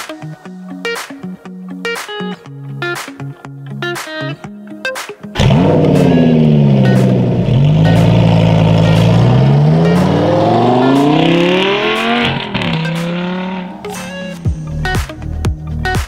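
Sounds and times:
sports car engine accelerating: 5.4s - 14.8s.

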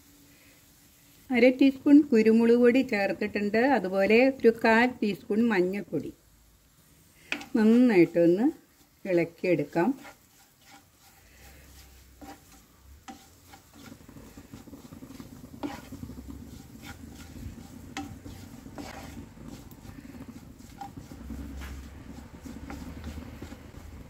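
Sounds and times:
onions sizzling in oil: 0.0s - 24.0s
spatula scraping frying pan: 7.2s - 24.0s.

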